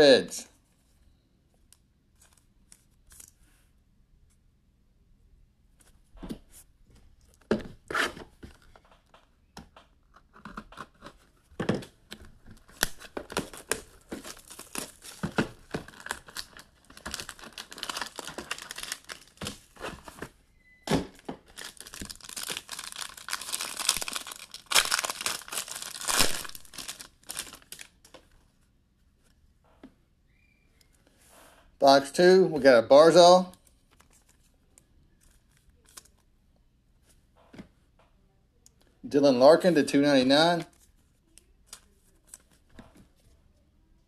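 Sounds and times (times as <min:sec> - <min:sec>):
plastic wrapping ripping and crinkling: 0:12.6 - 0:20.1, 0:21.4 - 0:28.0.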